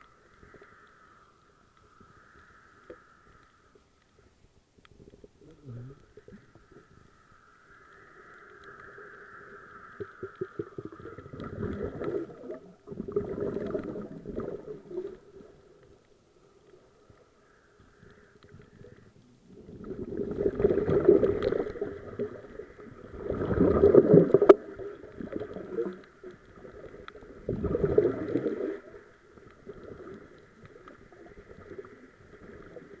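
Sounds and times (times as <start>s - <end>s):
faint steady hum: 0.0s - 33.0s
underwater exhaust bubbles: 7.8s - 33.0s.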